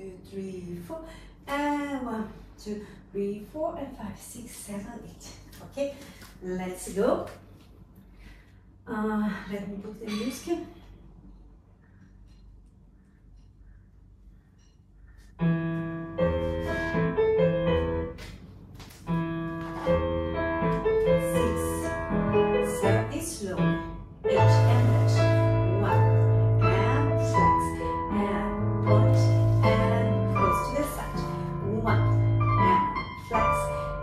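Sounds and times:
piano through small speaker: 15.4 - 34.0.

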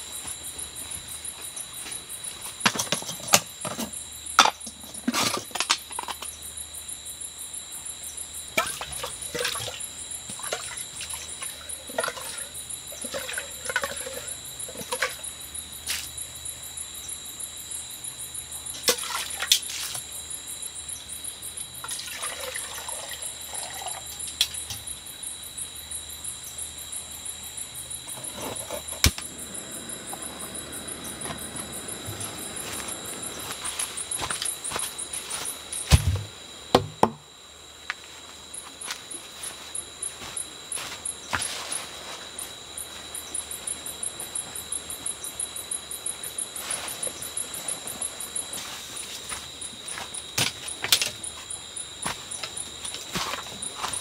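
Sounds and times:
night insects trilling: 0.0 - 54.0
water pouring into a cup: 22.1 - 24.0.

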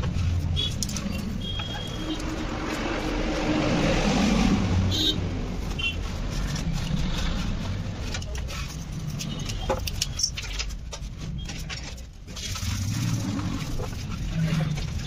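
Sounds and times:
traffic rumble: 0.0 - 15.0
vehicle passing: 1.3 - 8.0.

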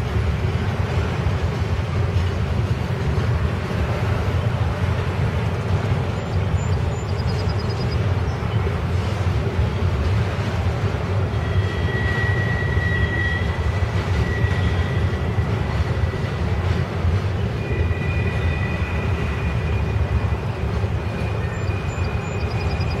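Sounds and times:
train wheels rumbling on rail: 0.0 - 23.0.

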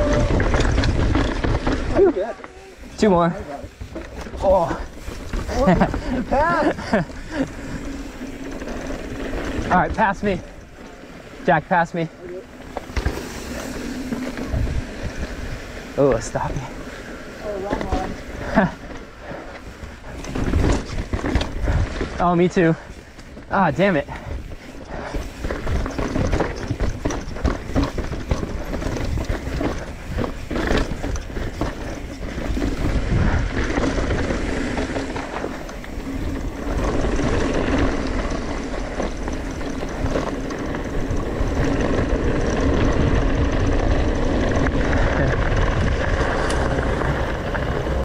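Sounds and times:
wind rushing on microphone: 0.0 - 2.2, 13.3 - 16.7, 24.0 - 48.0
bike rattling over rocks: 0.0 - 48.0
tyres rolling over gravel: 0.0 - 48.0.

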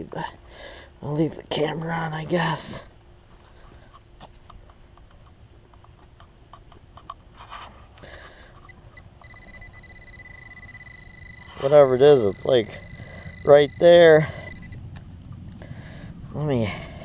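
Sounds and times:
metal detector beeping: 8.6 - 14.8.

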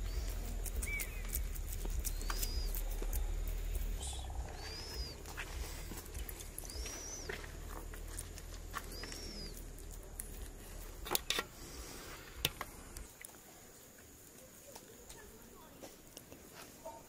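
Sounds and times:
low rumble: 0.0 - 11.1
bird chirping: 0.0 - 14.0.

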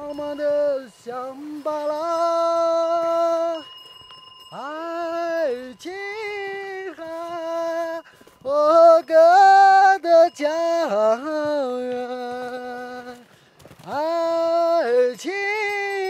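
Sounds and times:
person singing unaccompanied: 0.0 - 3.8, 4.4 - 16.0.

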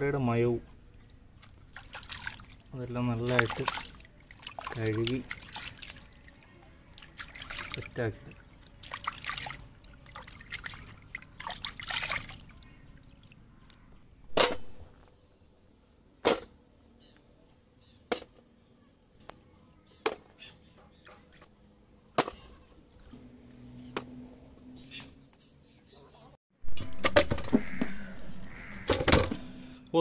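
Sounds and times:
water sloshing in a metal bowl: 1.0 - 14.0.

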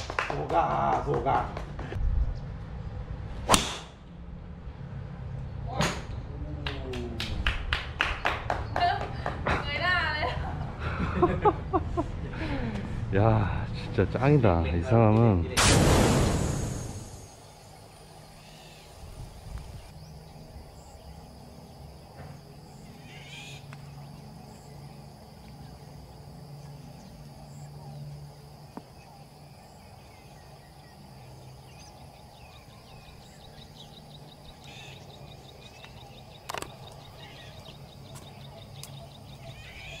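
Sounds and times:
sharp crack: 3.4 - 4.1, 15.6 - 17.4
insects buzzing: 15.6 - 40.0
fast pulsing insect trill: 16.2 - 40.0
birds calling: 17.2 - 40.0.

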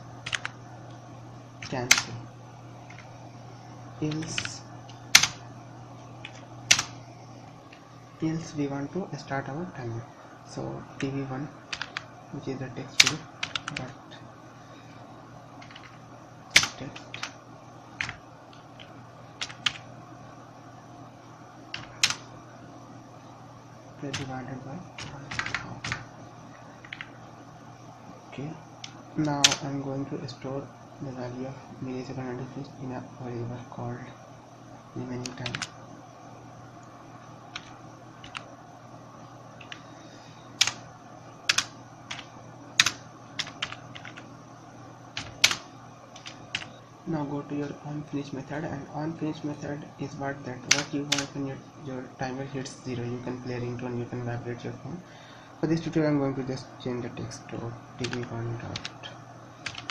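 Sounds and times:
faint low hum: 0.0 - 59.9
keyboard typing: 0.2 - 0.6, 1.6 - 2.2, 2.8 - 3.1, 4.0 - 5.5, 6.2 - 7.0, 11.0 - 12.1, 12.9 - 13.9, 15.6 - 17.4, 18.0 - 19.9, 21.7 - 22.3, 24.0 - 26.1, 26.8 - 27.2, 28.8 - 29.7, 35.2 - 35.8, 37.5 - 38.5, 39.6 - 39.8, 40.6 - 40.8, 41.5 - 44.3, 45.2 - 46.8, 50.6 - 51.4, 58.0 - 59.9.

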